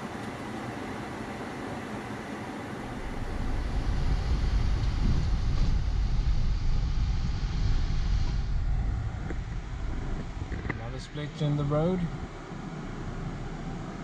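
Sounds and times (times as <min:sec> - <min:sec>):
car engine driving off: 0:02.8 - 0:14.0.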